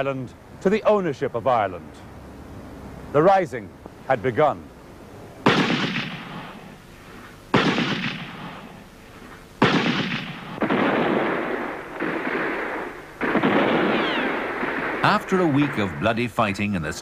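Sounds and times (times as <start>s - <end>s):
gunfire: 5.4s - 6.8s, 7.5s - 8.9s, 9.6s - 16.3s
explosions: 9.6s - 16.3s
loud battle din: 13.2s - 16.3s.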